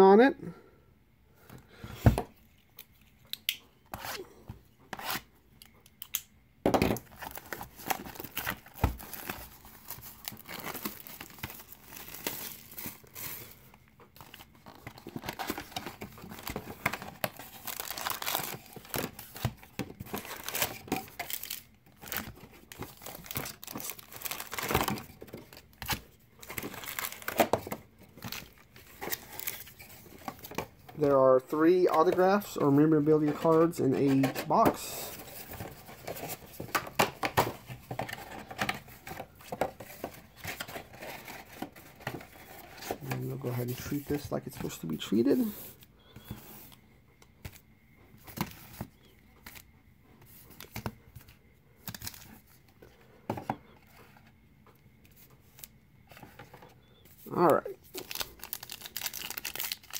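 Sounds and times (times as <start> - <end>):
plastic crinkling: 7.0 - 45.6, 57.2 - 59.9
foil packs handled: 7.0 - 46.4, 57.2 - 59.9
plastic shrink wrap tearing: 57.9 - 59.9.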